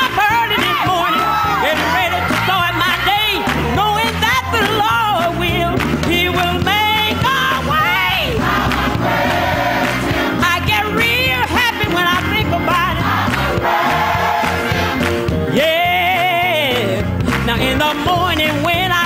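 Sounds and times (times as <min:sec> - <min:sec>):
woman singing lead: 0:00.0 - 0:08.4, 0:10.3 - 0:13.2, 0:15.5 - 0:19.0
accompanying band: 0:00.0 - 0:19.0
choir singing: 0:07.8 - 0:10.4, 0:12.8 - 0:15.1.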